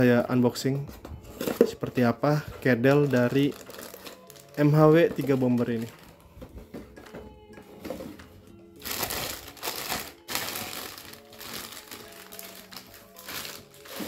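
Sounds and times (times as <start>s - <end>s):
background music: 0.0s - 14.0s
plastic bag crinkling: 2.8s - 6.2s, 8.8s - 14.0s.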